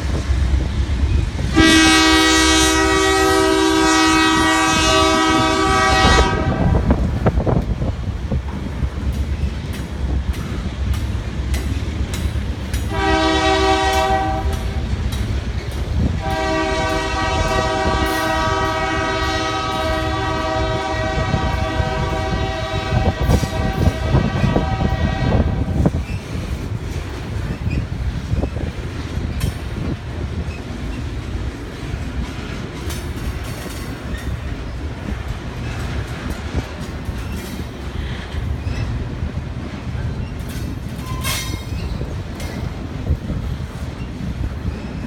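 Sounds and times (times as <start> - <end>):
train rumbling past: 0.0 - 45.0
locomotive horn blasts: 1.5 - 7.0, 12.9 - 14.8, 16.1 - 25.8
wheels clicking over rail joints: 7.0 - 22.2, 25.6 - 45.0.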